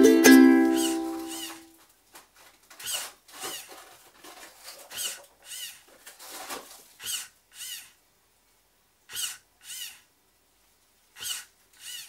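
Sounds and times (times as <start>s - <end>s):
servo motor whining: 0.8s - 1.6s, 4.9s - 5.8s, 7.0s - 8.0s, 9.1s - 10.0s, 11.2s - 12.0s.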